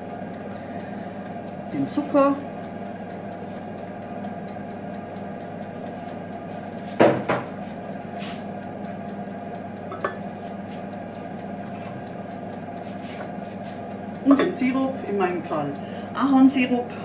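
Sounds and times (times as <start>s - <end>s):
steady hum: 0.0s - 17.0s
kitchenware clanking on steel pot: 9.9s - 10.2s.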